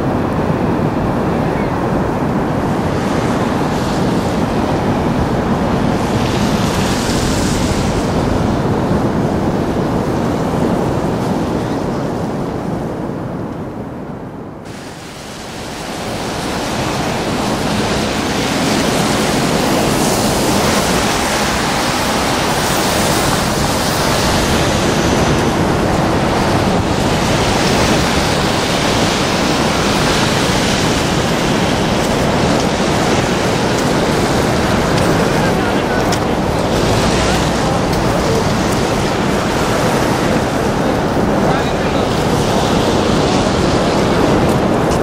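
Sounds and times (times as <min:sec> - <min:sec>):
roar of falling water: 0:14.7 - 0:45.0.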